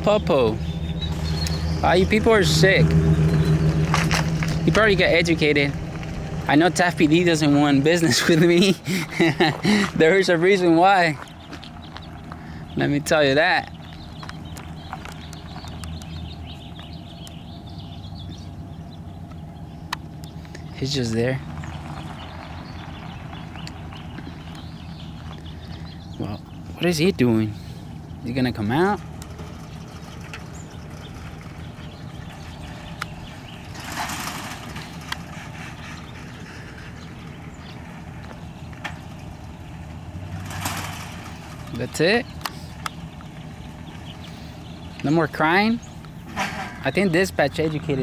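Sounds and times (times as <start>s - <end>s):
truck engine running: 0.0s - 48.0s.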